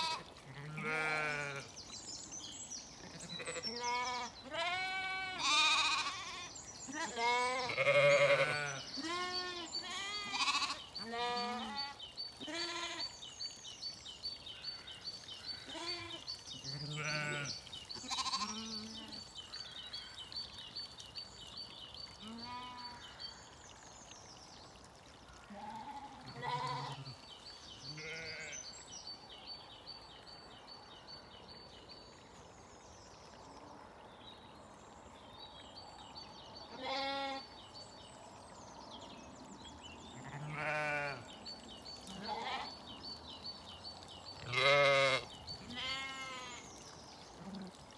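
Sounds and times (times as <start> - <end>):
sheep bleating: 0.0 - 1.7, 3.2 - 6.4, 7.0 - 11.9, 15.7 - 17.5, 18.1 - 18.7, 25.6 - 27.1, 28.0 - 28.6, 40.2 - 41.2, 44.4 - 46.6.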